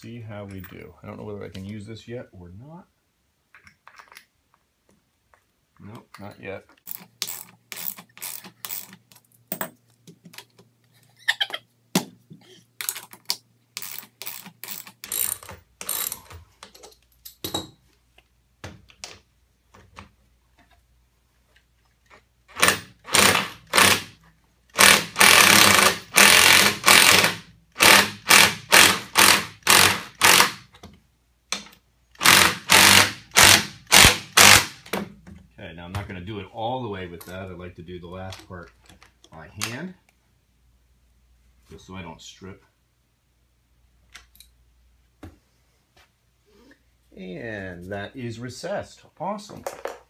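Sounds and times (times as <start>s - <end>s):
metal washers clinking: 13.8s - 17.8s
impact driver hammering screw: 22.5s - 24.2s, 24.8s - 30.6s, 32.2s - 35.0s.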